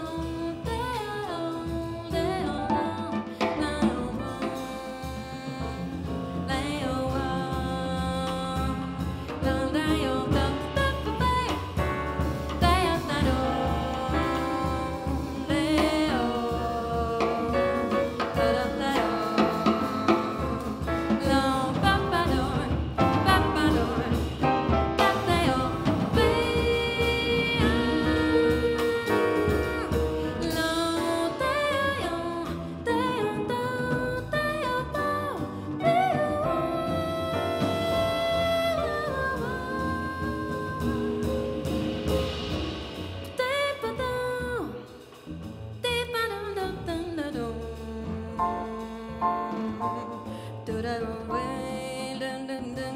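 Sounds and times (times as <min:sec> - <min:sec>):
woman singing: 0:00.0 - 0:41.8, 0:43.2 - 0:45.1, 0:45.8 - 0:52.9
double bass: 0:00.0 - 0:52.9
drum kit: 0:00.0 - 0:52.9
piano: 0:00.0 - 0:52.9.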